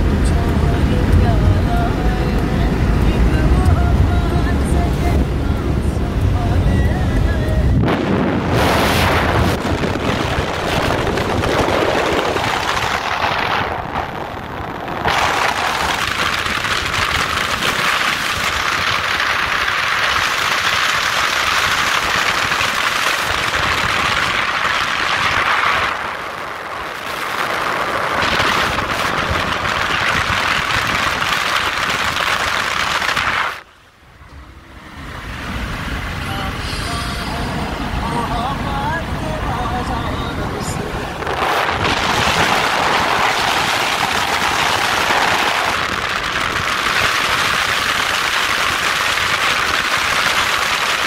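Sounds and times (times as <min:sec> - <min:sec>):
car interior road and wind noise: 0:00.0 - 0:51.0.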